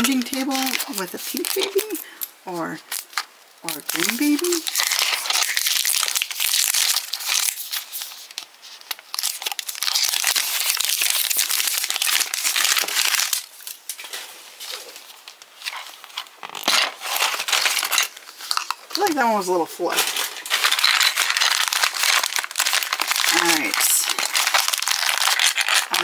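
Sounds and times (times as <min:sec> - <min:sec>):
plastic film crinkling and tearing: 0:00.0 - 0:26.0.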